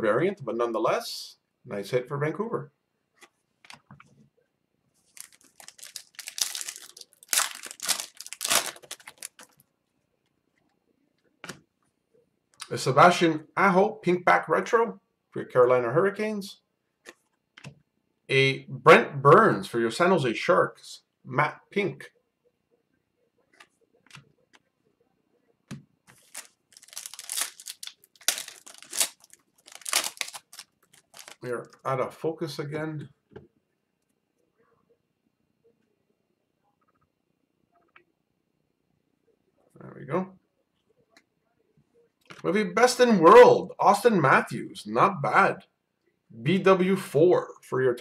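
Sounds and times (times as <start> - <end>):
foil wrapper crinkling: 5.1 - 9.6, 26.1 - 31.4.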